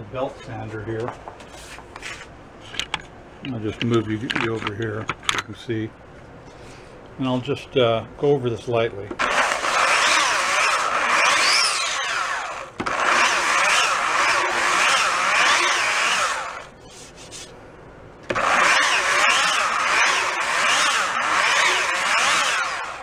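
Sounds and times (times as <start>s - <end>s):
belt sander sanding wood: 9.2s - 17.6s, 18.3s - 23.0s.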